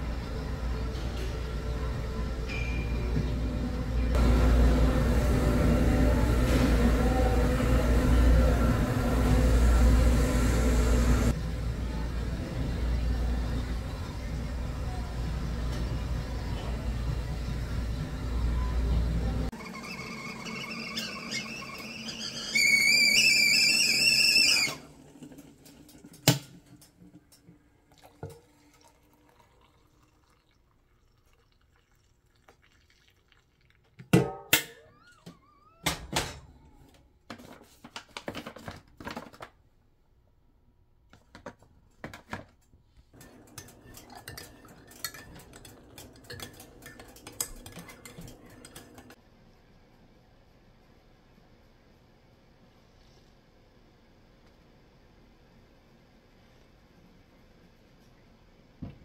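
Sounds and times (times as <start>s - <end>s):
kettle whistling: 19.5s - 24.9s
water pouring into mug: 27.9s - 34.0s
kitchenware clinking: 43.2s - 49.2s
spoon stirring in mug: 43.2s - 49.2s.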